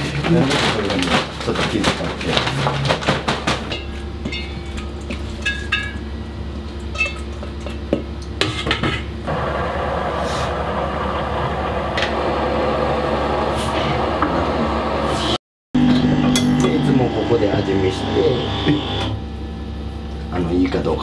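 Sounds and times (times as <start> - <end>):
metal bowls clinking: 3.6 - 6.2, 6.8 - 7.8
dough mixer running: 9.3 - 19.2.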